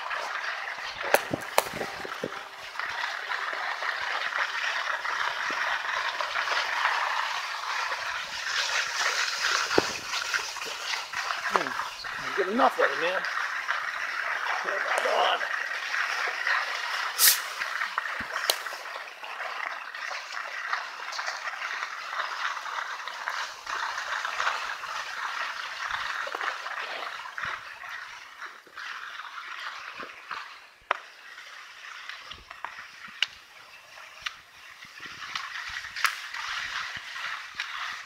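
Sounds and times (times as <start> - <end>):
skis scraping over snow: 0.0 - 38.0.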